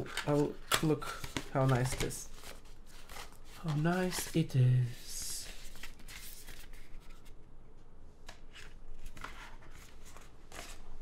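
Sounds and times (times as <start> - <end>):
cardboard packaging rustling: 0.0 - 4.6.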